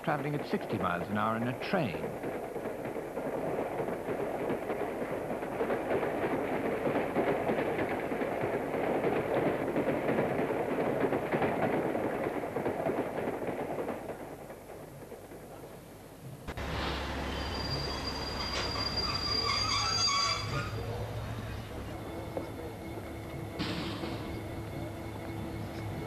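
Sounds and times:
train rattling: 0.0s - 26.0s.

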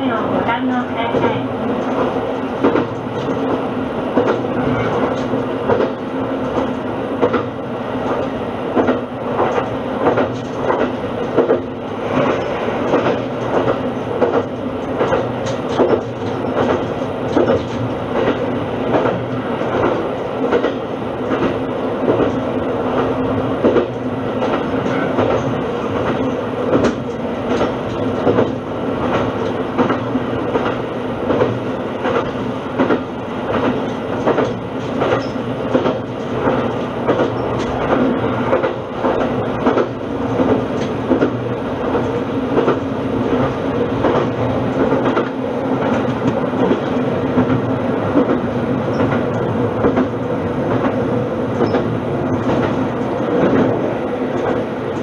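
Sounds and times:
wheels clacking over rail joints: 8.8s - 22.4s, 23.0s - 51.0s.

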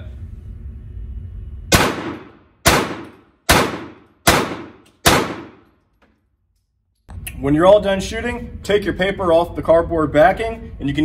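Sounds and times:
pistol shots ringing indoors: 1.7s - 6.1s.

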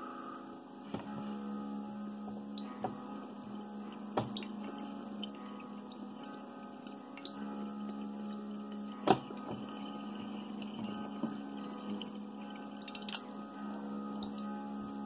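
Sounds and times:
electrical hum: 0.0s - 15.0s
water bubbling in glass: 3.9s - 15.0s.

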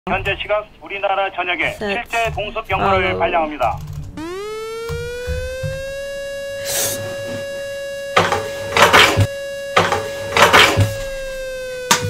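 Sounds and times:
air raid siren wailing: 4.2s - 12.0s.

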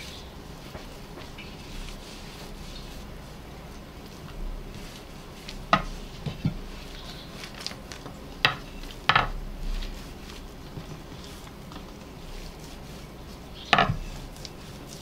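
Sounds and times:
rolling pin rolling over dough: 0.0s - 15.0s
rolling pin knocking on wood: 8.4s - 9.4s, 13.7s - 14.1s.

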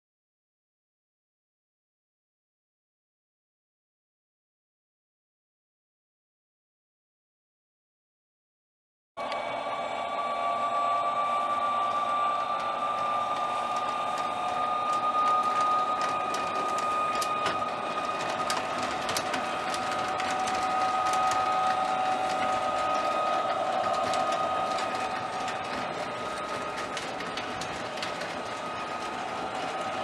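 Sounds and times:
model train motor whine: 9.2s - 30.0s
wheels clicking over rail joints: 12.4s - 30.0s.

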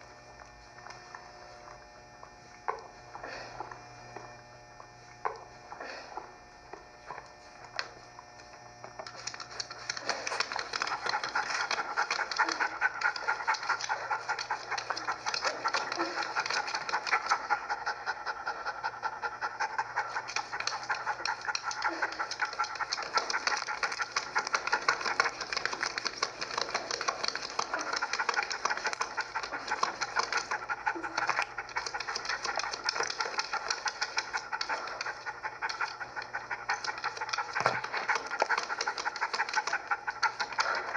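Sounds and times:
dog panting rapidly: 9.0s - 40.9s.

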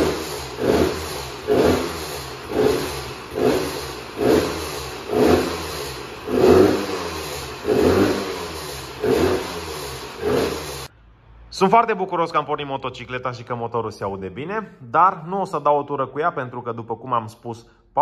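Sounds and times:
two-stroke engine revving: 0.0s - 10.9s.

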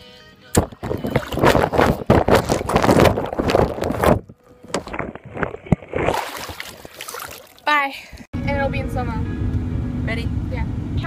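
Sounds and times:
pool water splashing: 5.2s - 7.6s.

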